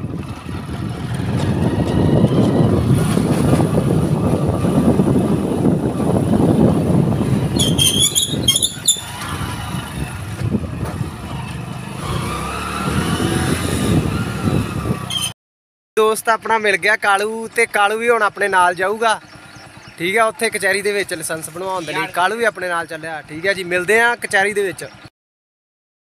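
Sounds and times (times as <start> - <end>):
motorcycle engine running: 0.0 - 15.2, 18.8 - 22.4
wind noise on microphone: 0.0 - 15.3
short high-pitched chirps: 7.6 - 9.1.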